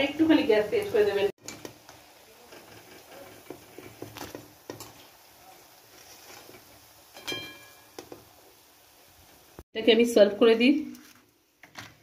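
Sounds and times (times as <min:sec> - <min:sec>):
potatoes sizzling in oil: 0:00.0 - 0:12.0
spoon striking ringing pan: 0:07.2 - 0:08.0.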